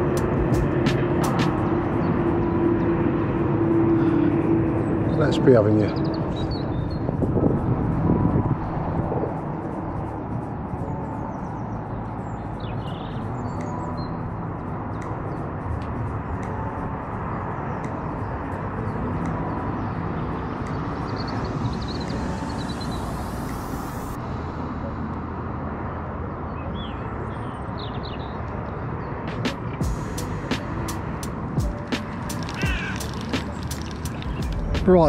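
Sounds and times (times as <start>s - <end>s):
wind rumbling on microphone: 0.0s - 24.7s.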